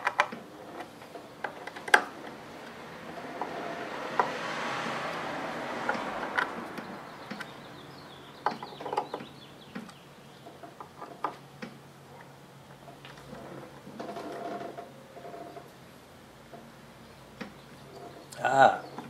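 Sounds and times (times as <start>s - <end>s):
broad rushing noise: 1.8s - 8.4s.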